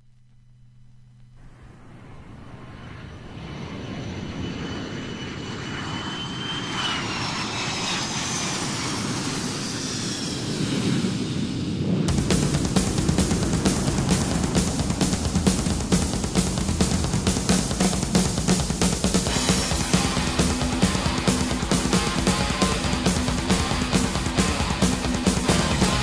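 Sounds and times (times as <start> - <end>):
airplane flying past: 1.4 - 26.0
high-pitched engine whine: 1.4 - 26.0.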